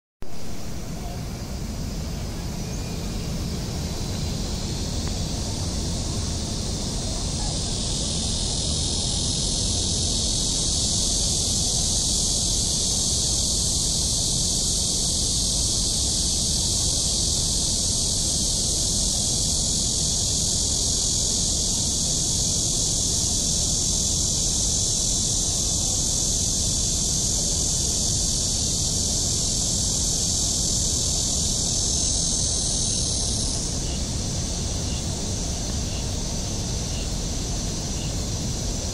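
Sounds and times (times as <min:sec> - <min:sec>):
high-pitched insect chorus: 0:00.2 - 0:38.9.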